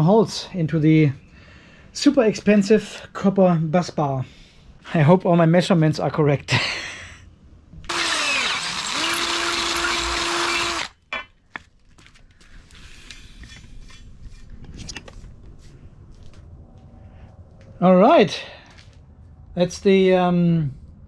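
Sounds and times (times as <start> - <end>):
electric drill boring into metal: 7.9 - 11.0.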